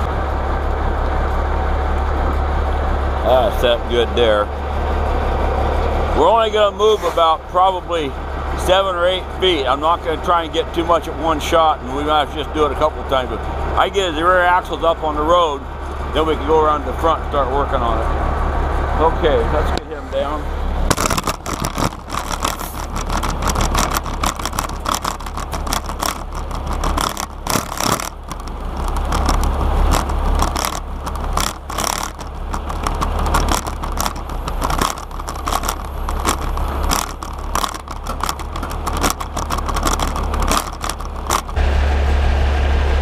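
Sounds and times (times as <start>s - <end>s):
truck engine running: 0.0s - 43.0s
hydraulic controls clicking: 20.9s - 41.6s.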